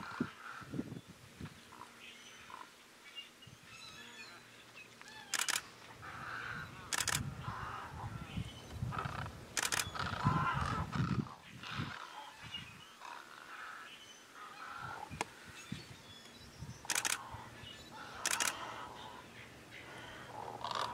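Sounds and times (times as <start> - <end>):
birds croaking: 0.0 - 20.9
birds squawking: 5.1 - 16.0, 16.6 - 20.9
sharp clicks: 5.3 - 5.6, 6.9 - 7.2, 9.6 - 9.9, 16.8 - 17.2, 18.2 - 18.6.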